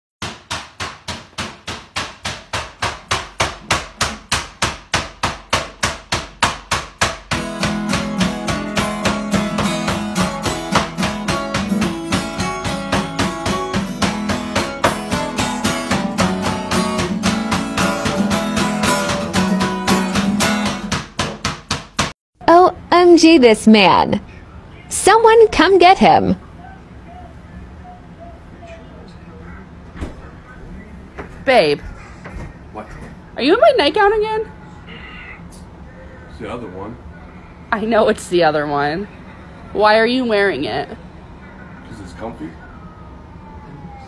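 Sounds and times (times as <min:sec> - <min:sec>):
acoustic guitar strumming: 0:07.3 - 0:21.2.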